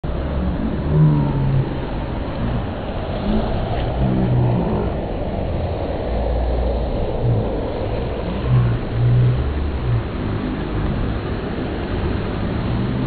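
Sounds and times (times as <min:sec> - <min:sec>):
low rumble: 0:00.0 - 0:13.0
water churning and breaking: 0:00.0 - 0:13.0.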